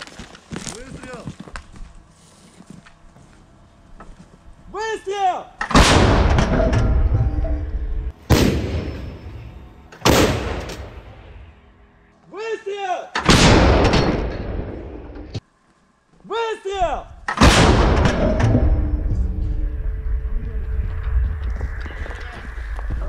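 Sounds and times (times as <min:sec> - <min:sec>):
artillery gun blasts: 0:05.6 - 0:06.8, 0:08.3 - 0:09.3, 0:10.0 - 0:11.1, 0:13.2 - 0:15.3, 0:17.3 - 0:18.8
long rumble: 0:17.5 - 0:23.0.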